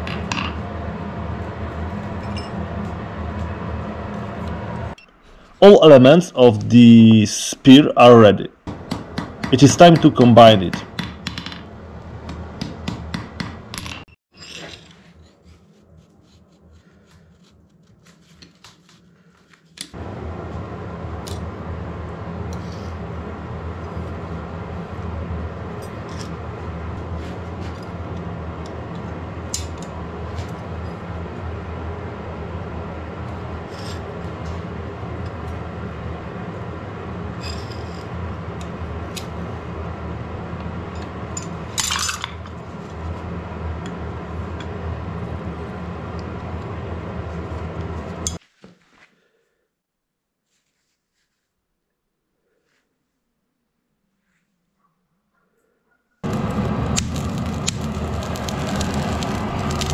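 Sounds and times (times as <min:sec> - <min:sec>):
steady hum: 0:00.0 - 0:14.1, 0:19.2 - 0:48.4, 0:56.2 - 0:59.9.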